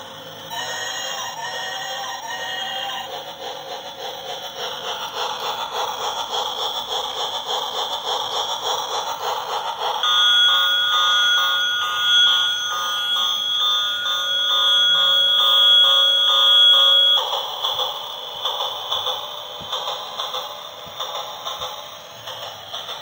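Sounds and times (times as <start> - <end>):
shrill pulsing beeping tune: 10.0 - 17.8.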